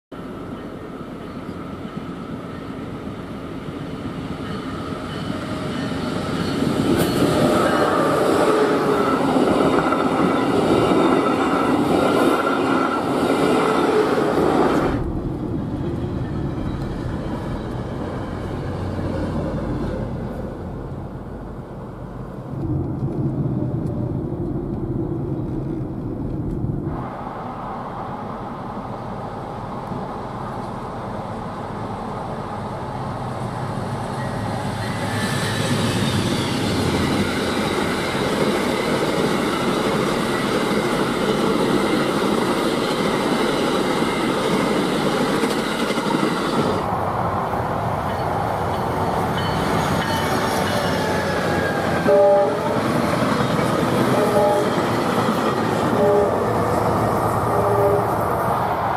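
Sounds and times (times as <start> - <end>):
passenger trains passing: 0.1 - 58.9
train horn: 7.0 - 9.3, 49.8 - 53.1, 54.0 - 55.0, 55.8 - 56.8, 57.5 - 58.2.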